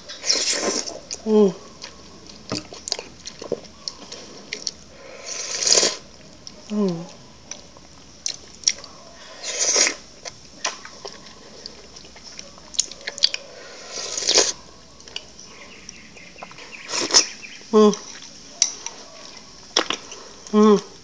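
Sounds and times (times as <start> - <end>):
person slurping: 0.1 - 1.6, 4.2 - 6.0, 9.3 - 10.0, 13.4 - 14.6.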